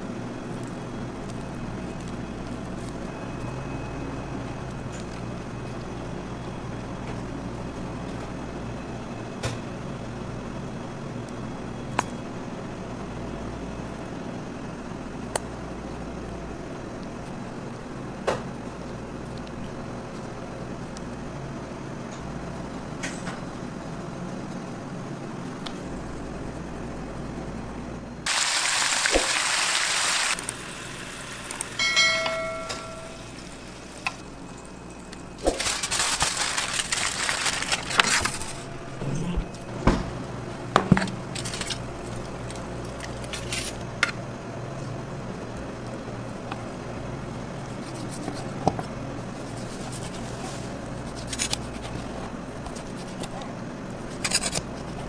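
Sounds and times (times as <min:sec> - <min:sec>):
background hum: 0:00.0 - 0:55.0
loud hissing: 0:28.3 - 0:31.8
short ringing tone: 0:31.8 - 0:33.5.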